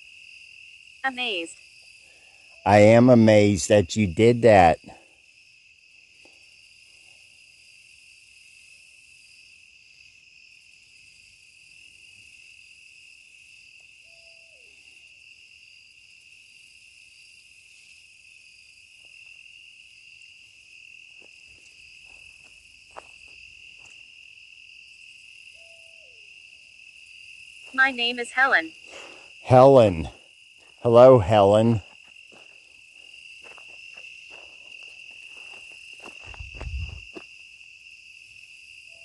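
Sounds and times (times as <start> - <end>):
crickets and insects chirping: 0.0 - 39.0
owl calling: 25.5 - 26.2.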